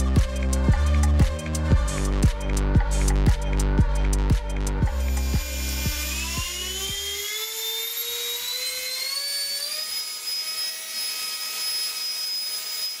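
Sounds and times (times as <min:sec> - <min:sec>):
electronic music with low beat: 0:00.0 - 0:07.2.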